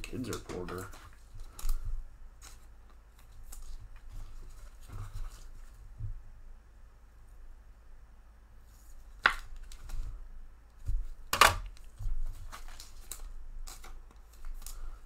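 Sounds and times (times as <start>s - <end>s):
cards tapping and rustling: 0.0s - 5.5s, 9.1s - 10.2s, 10.8s - 15.0s
faint low hum: 0.0s - 15.0s.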